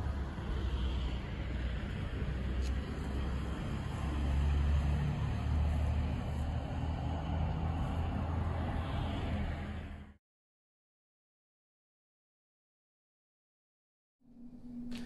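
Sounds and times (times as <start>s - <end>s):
road traffic rumble: 0.0s - 10.2s.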